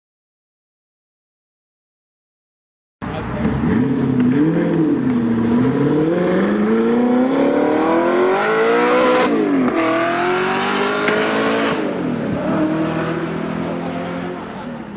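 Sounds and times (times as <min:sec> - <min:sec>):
engine accelerating through gears: 0:03.4 - 0:14.5.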